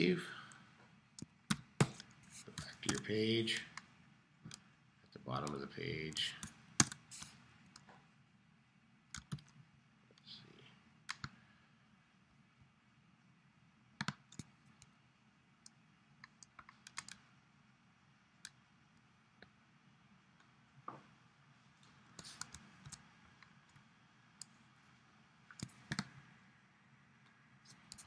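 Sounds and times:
computer mouse clicks: 6.4s - 7.9s, 9.1s - 9.6s, 11.1s - 11.4s, 14.0s - 14.9s, 15.6s - 17.2s, 21.8s - 23.8s, 25.5s - 26.2s, 27.7s - 28.0s.

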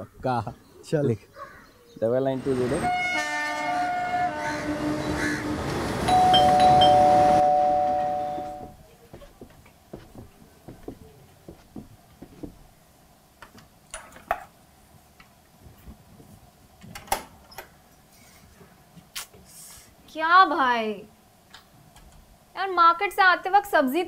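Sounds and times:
train noise: 2.2s - 8.8s
two-note doorbell chime: 6.1s - 8.8s
soft footsteps: 8.9s - 12.8s.

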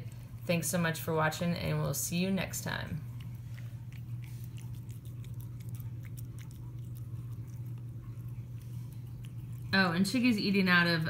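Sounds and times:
steady low hum: 0.0s - 11.0s
cat chewing wet food: 2.4s - 10.4s.

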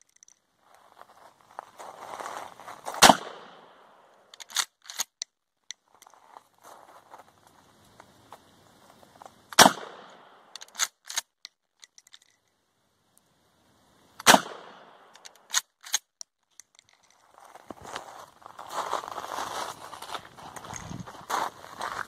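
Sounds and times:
shotgun shots: 3.0s - 3.8s, 9.6s - 10.8s, 14.2s - 15.6s.

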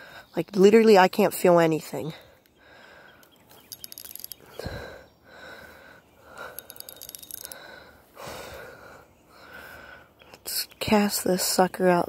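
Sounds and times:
person breathing close to microphone: 2.2s - 10.2s
light clicking and rustling: 3.2s - 4.7s, 6.4s - 7.8s.

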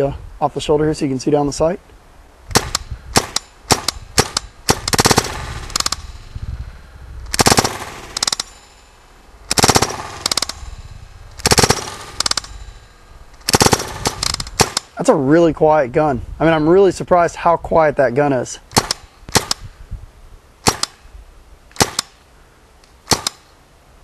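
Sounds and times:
paintball rifle firing quick shots: 2.5s - 6.2s, 7.3s - 8.6s, 9.5s - 10.8s, 11.4s - 12.8s, 13.4s - 15.0s, 18.7s - 19.6s, 20.6s - 21.0s, 21.7s - 22.2s, 23.0s - 23.6s.

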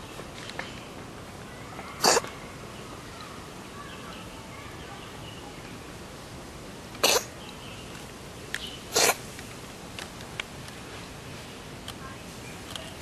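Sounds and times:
cat sneezing: 2.0s - 2.3s, 7.0s - 7.3s, 8.9s - 9.2s.

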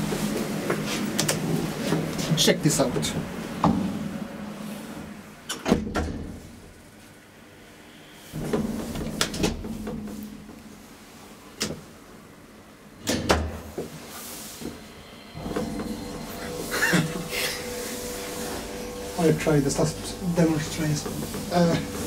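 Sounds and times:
elevator low hum: 0.0s - 5.6s, 6.3s - 22.0s
elevator thud: 15.4s - 22.0s.

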